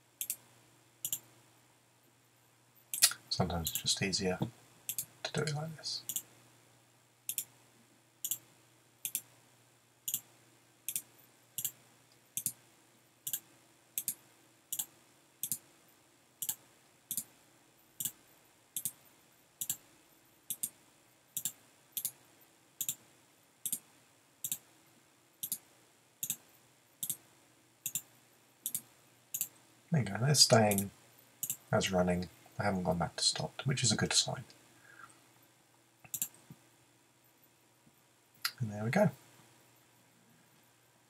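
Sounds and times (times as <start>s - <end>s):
faint steady hum: 0.0s - 41.0s
computer mouse clicking: 0.2s - 0.4s, 1.0s - 1.3s, 2.9s - 3.9s, 4.9s - 6.3s, 7.3s - 7.6s, 8.2s - 9.3s, 10.1s - 10.3s, 10.9s - 12.6s, 13.2s - 15.6s, 16.4s - 17.3s, 18.0s - 18.2s, 18.8s - 19.0s, 19.6s - 19.8s, 20.5s - 20.8s, 21.4s - 22.2s, 22.8s - 23.0s, 23.6s - 24.7s, 25.4s - 27.2s, 27.8s - 29.6s, 30.6s - 31.7s, 36.0s - 36.6s.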